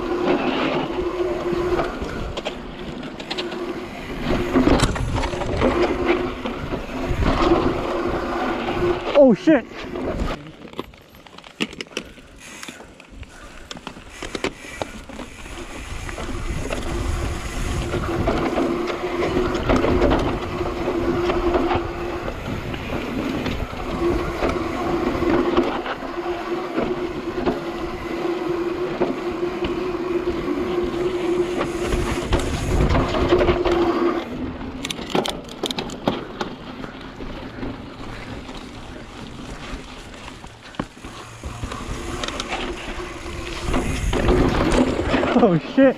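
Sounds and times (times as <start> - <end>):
bike hub buzzing: 0.0 - 45.9
tyres rumbling over dirt: 0.0 - 45.9
wind on microphone: 15.6 - 26.0, 30.0 - 34.2.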